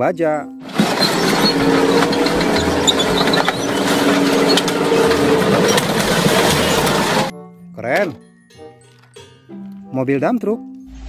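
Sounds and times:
metal crushing clicks and cracks: 0.6s - 7.3s
tank engine and tracks: 0.6s - 7.3s.

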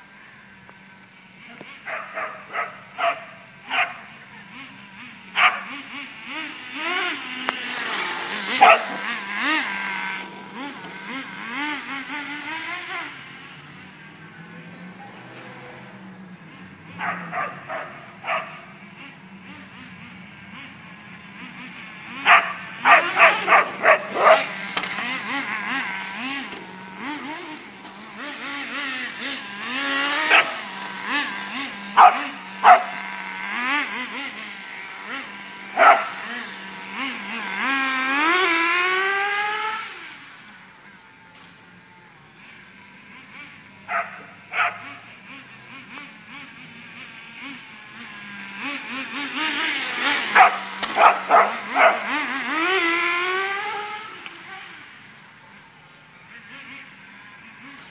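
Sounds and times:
rc car engine idling and revving: 0.0s - 57.9s
dog barking: 1.8s - 4.0s, 5.4s - 5.7s, 8.6s - 9.0s, 17.0s - 18.6s, 22.2s - 24.5s, 30.3s - 30.6s, 32.0s - 33.0s, 35.8s - 36.2s, 43.9s - 44.9s, 50.4s - 52.1s.

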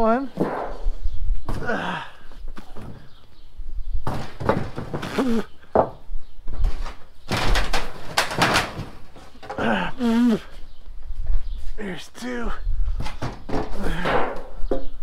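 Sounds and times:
wood cracking and scraping: 4.0s - 6.0s, 6.6s - 10.7s, 12.9s - 15.0s
wood knocking and creaking: 4.0s - 9.9s, 13.0s - 15.0s.

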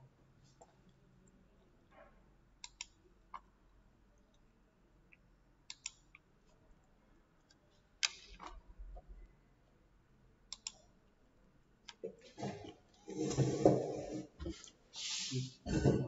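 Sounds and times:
computer mouse clicks: 2.6s - 3.5s, 5.7s - 6.3s, 7.4s - 8.6s, 10.5s - 10.8s.

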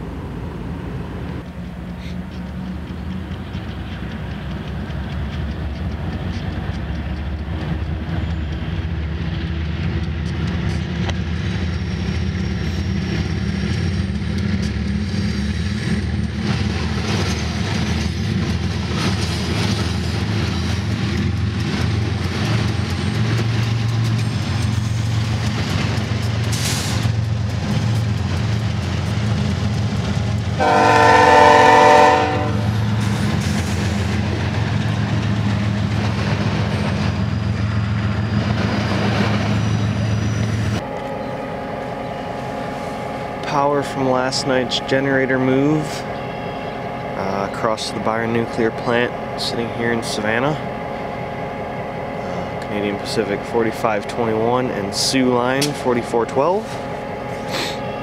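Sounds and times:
freight train rumble: 0.0s - 58.0s
locomotive air horn: 30.6s - 32.8s, 40.9s - 52.8s, 56.4s - 58.0s.

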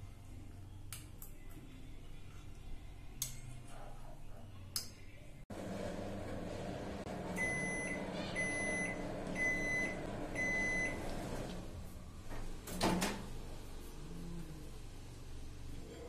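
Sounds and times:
microwave oven humming: 5.5s - 16.0s
microwave beeping: 5.6s - 11.8s.

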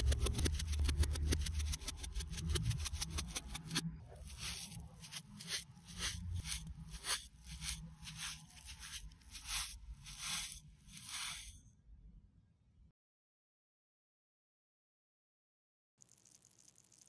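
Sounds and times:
pestle crunching sand: 0.0s - 11.6s.

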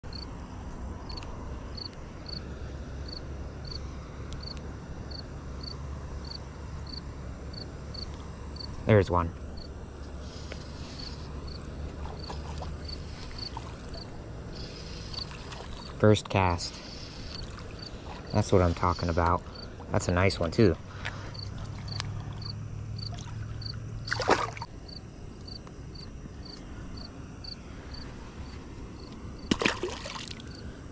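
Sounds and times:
insect chirping: 0.0s - 30.9s
water lapping against rocky shore: 11.8s - 16.0s.

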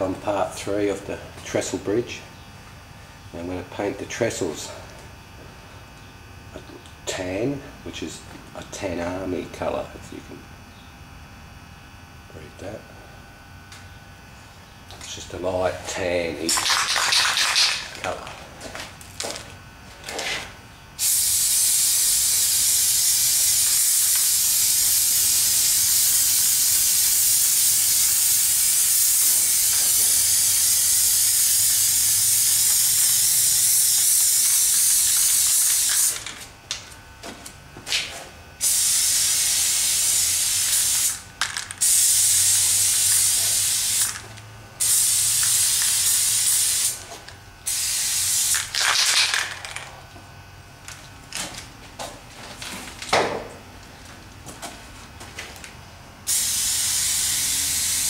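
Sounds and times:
spray paint can hissing: 16.5s - 18.0s, 21.0s - 36.4s, 38.6s - 47.1s, 47.7s - 49.9s, 56.3s - 58.0s.

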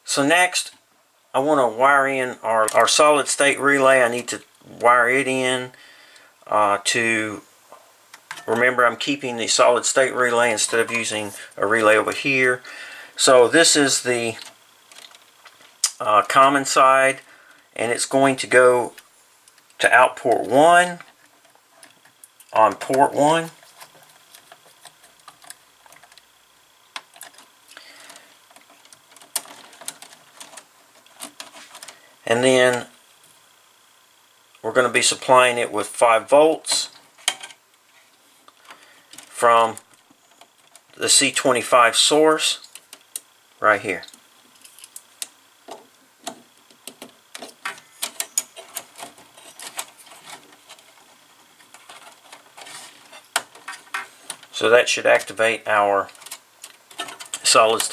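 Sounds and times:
hands rustling wires: 19.0s - 32.0s, 36.9s - 41.0s, 44.0s - 57.9s.

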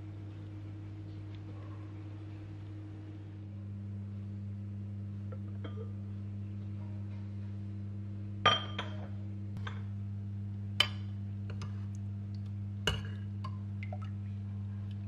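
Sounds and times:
steady low hum: 0.0s - 15.0s
glass lid clinking on ceramic pot: 8.5s - 9.0s.

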